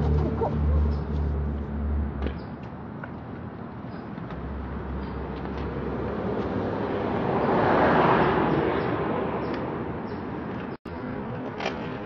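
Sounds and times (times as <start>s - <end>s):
vehicle passing by: 0.0s - 2.2s, 5.5s - 9.5s.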